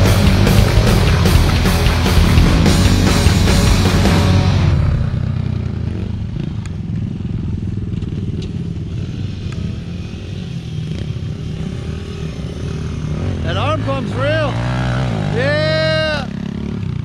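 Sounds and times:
pit bike engine running: 0:00.0 - 0:17.0.

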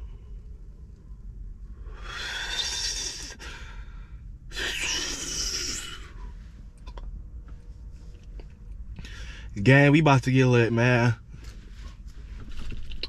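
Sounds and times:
person exhaling breath: 0:01.8 - 0:06.3.

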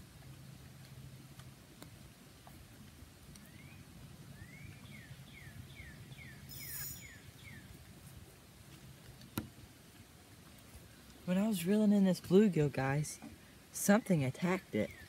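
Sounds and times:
songbird whistling: 0:03.5 - 0:07.7.

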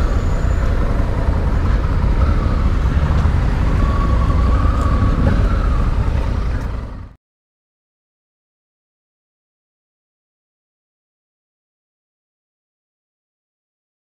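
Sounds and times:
wind on microphone: 0:00.0 - 0:07.1
motorcycle engine rumble: 0:00.0 - 0:07.2.

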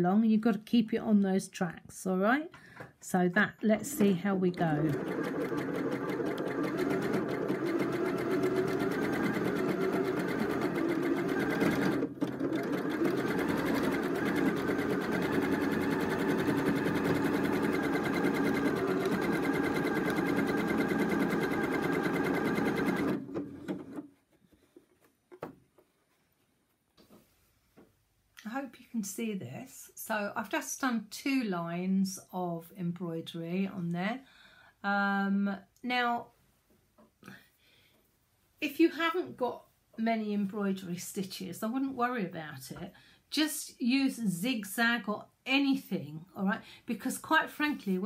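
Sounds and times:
sewing machine stitching rapidly: 0:03.8 - 0:24.1.

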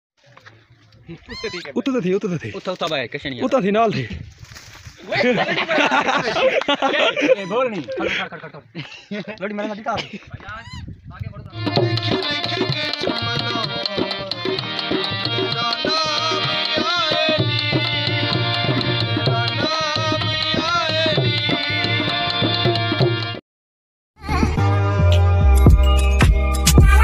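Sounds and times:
harmonium chords: 0:11.5 - 0:23.4
hand drums rhythm: 0:11.6 - 0:23.4.

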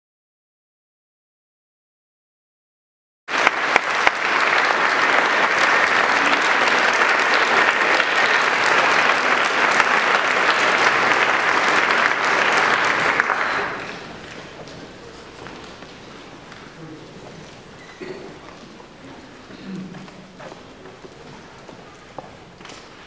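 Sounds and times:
audience applause: 0:03.3 - 0:17.1.

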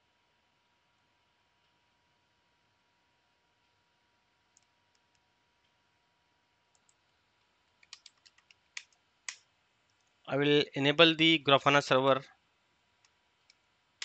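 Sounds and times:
faint clicks: 0:06.7 - 0:10.2
computer keyboard keystrokes: 0:07.8 - 0:09.0.

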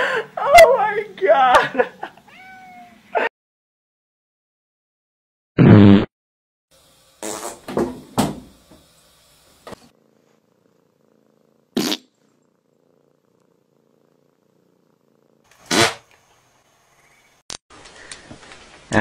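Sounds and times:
cat purring: 0:09.8 - 0:15.5.

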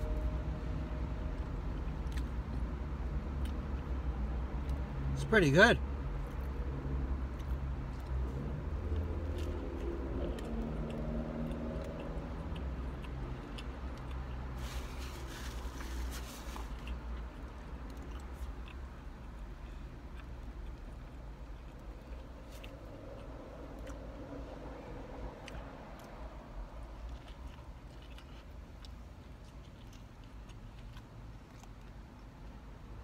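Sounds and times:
man chewing food: 0:01.3 - 0:05.1, 0:06.1 - 0:33.0
steady low rumble: 0:05.8 - 0:33.0.

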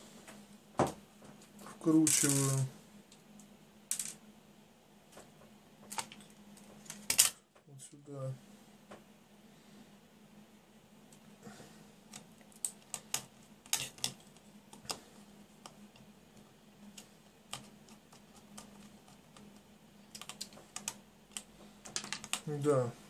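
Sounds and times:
faint steady hum: 0:00.0 - 0:23.0
small clicks and taps: 0:16.9 - 0:22.5.

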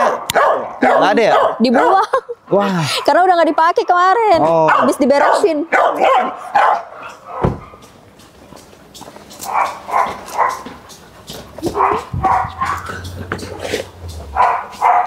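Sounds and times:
dog barking: 0:00.0 - 0:03.2, 0:03.8 - 0:07.8, 0:09.4 - 0:10.7, 0:11.6 - 0:15.0.

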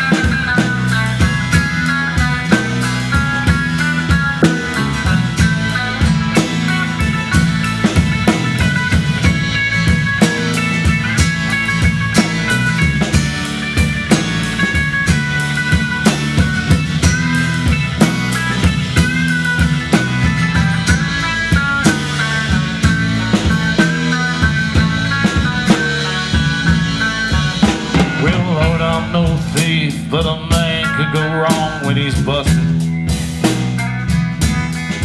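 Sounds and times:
bass guitar: 0:00.0 - 0:35.0
drums steady beat: 0:00.0 - 0:35.0
electric guitar lead: 0:00.0 - 0:35.0
strummed acoustic guitar: 0:00.0 - 0:35.0.

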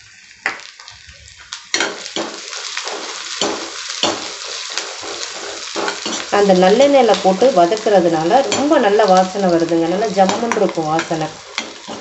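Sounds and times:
onions sizzling in hot oil: 0:00.0 - 0:12.0
steel spatula scraping pan: 0:10.3 - 0:12.0.

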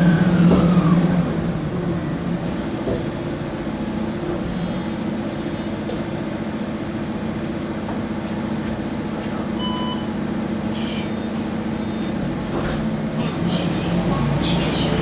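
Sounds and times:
bus engine running: 0:00.0 - 0:15.0
loud steady fan noise: 0:00.0 - 0:15.0.

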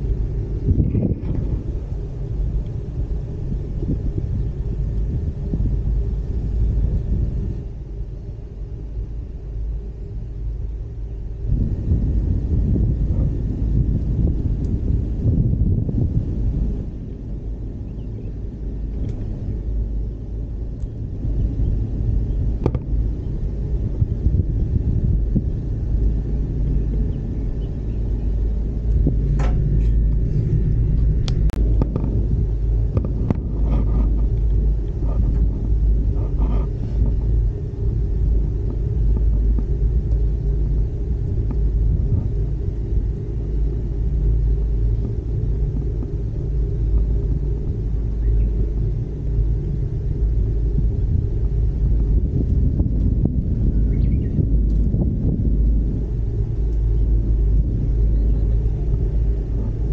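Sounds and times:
gondola cabin rumble: 0:00.0 - 0:59.9
faint clicks and knocks: 0:22.6 - 0:22.9, 0:30.9 - 0:37.3.

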